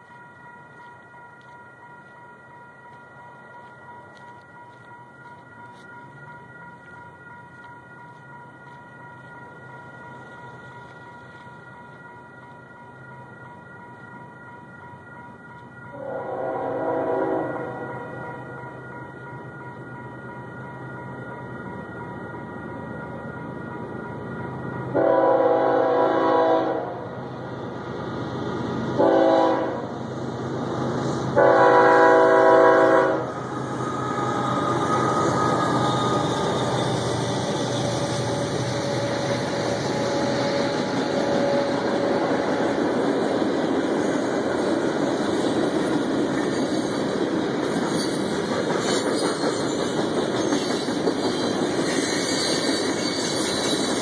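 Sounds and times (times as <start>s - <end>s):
locomotive horn blasts: 16.0s - 18.2s, 25.0s - 27.1s, 29.0s - 30.0s, 31.4s - 33.4s
train wheel clatter: 27.6s - 54.0s.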